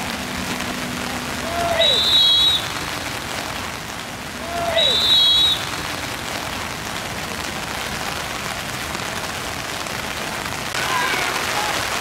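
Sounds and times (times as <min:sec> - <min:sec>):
heavy rain: 0:00.0 - 0:12.0
faint shouted call: 0:01.4 - 0:02.6, 0:04.4 - 0:05.6, 0:10.8 - 0:12.0.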